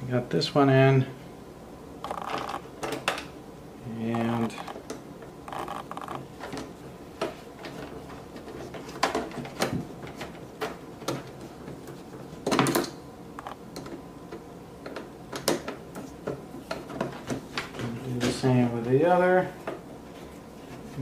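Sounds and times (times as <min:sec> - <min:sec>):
screwdriver turning a screw: 0:05.5 - 0:06.2.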